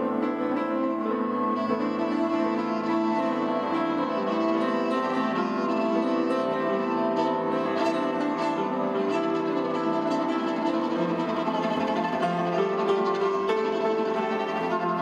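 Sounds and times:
bowed violin: 0.0 - 15.0
piano playing: 0.0 - 15.0.

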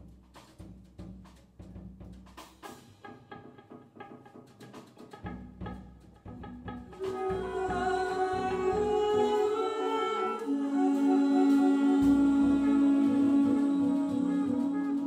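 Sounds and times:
double bass: 5.2 - 9.2, 10.9 - 15.0
saxophone and brass chords: 6.5 - 15.0
wordless sung notes: 6.8 - 15.0.

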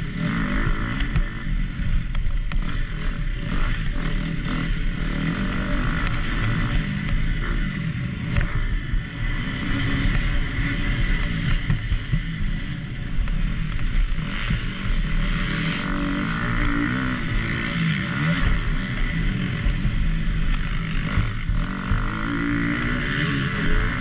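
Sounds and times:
motocross bike engine revving: 0.0 - 24.0
sharp clicks and knocks: 0.7 - 4.2, 5.8 - 7.5, 8.2 - 15.8, 16.5 - 24.0.

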